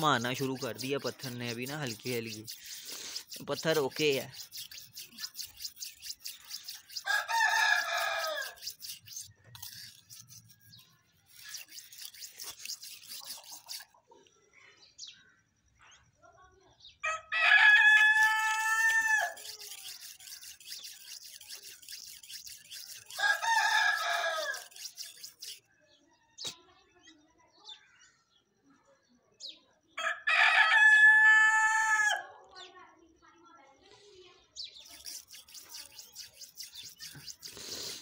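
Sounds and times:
knife scraping on sharpening stone: 0:00.0 - 0:14.0, 0:18.0 - 0:25.6, 0:34.8 - 0:38.0
rooster crowing: 0:17.0 - 0:19.4, 0:30.0 - 0:32.3.

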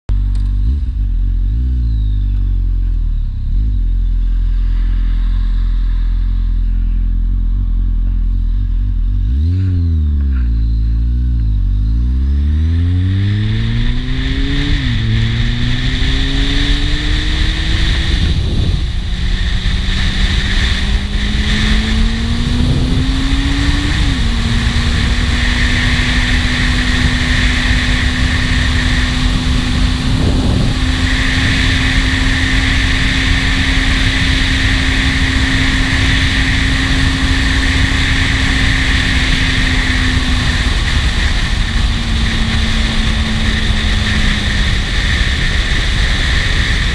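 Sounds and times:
motorcycle engine accelerating: 0:00.1 - 0:46.9
wind rushing over camera: 0:11.5 - 0:46.9.

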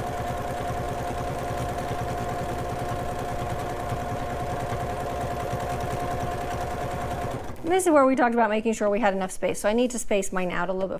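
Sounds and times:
sewing machine needle clatter: 0:00.0 - 0:07.7
sewing machine motor whine: 0:00.0 - 0:07.8.

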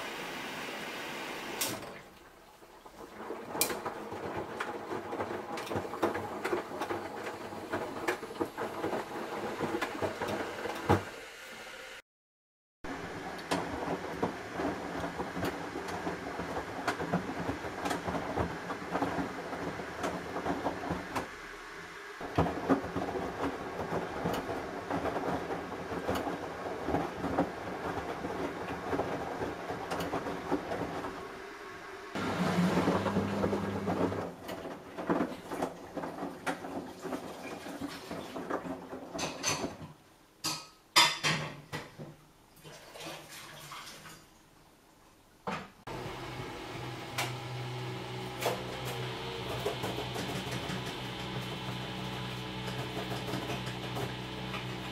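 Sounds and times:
water sloshing in washing machine: 0:01.6 - 0:11.3, 0:12.9 - 0:21.5, 0:22.2 - 0:39.9, 0:42.6 - 0:44.3, 0:45.9 - 0:54.9
washing machine motor humming: 0:03.0 - 0:12.0, 0:12.9 - 0:37.2, 0:45.9 - 0:54.9.

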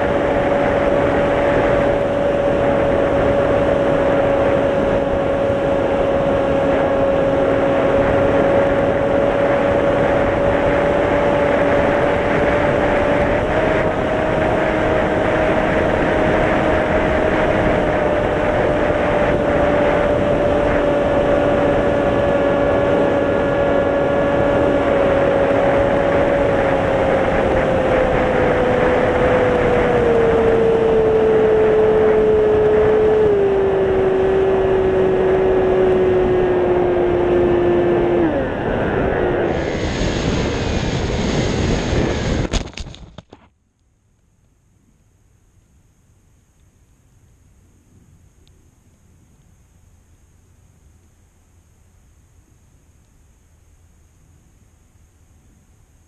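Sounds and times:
electric motor propeller whine: 0:00.0 - 0:42.5
rushing wind: 0:00.0 - 0:43.5.

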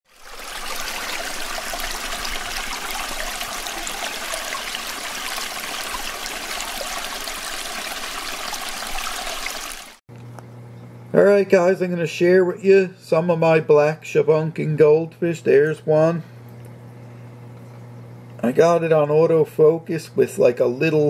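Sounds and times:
water trickling: 0:00.1 - 0:10.0.

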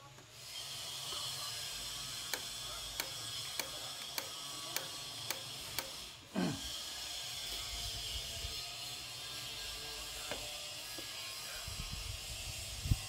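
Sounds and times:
sharp mechanical clicks: 0:02.2 - 0:06.1.

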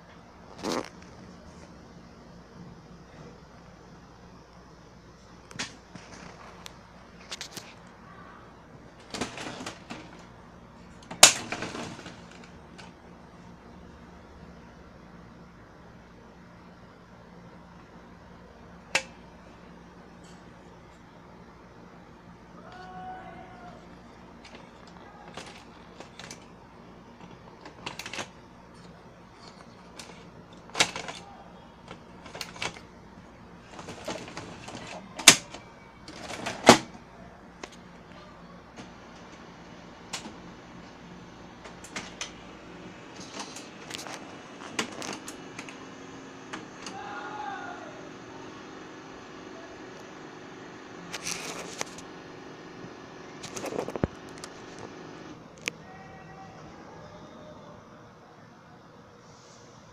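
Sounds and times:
printer plastic clicks and rattles: 0:09.0 - 0:10.3, 0:10.9 - 0:13.0, 0:24.4 - 0:26.5, 0:27.2 - 0:32.9, 0:33.7 - 0:37.0.

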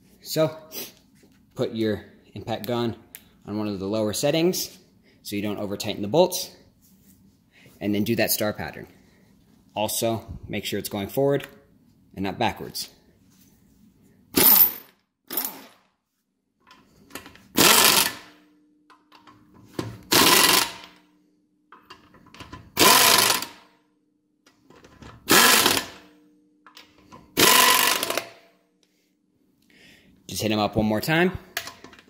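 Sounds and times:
impact wrench bursts: 0:14.3 - 0:15.8, 0:17.5 - 0:18.4, 0:20.0 - 0:21.0, 0:22.7 - 0:23.7, 0:25.2 - 0:26.1, 0:26.8 - 0:28.4.

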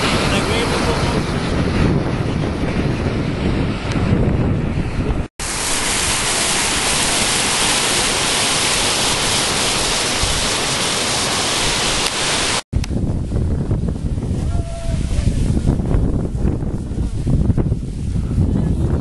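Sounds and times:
wind buffeting microphone: 0:00.0 - 0:10.8, 0:12.5 - 0:19.0
stream running over rocks: 0:05.4 - 0:12.6.

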